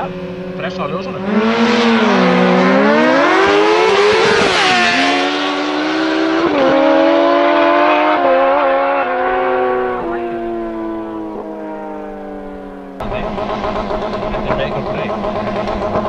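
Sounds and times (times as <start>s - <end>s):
motorcycles accelerating: 0.0s - 16.0s.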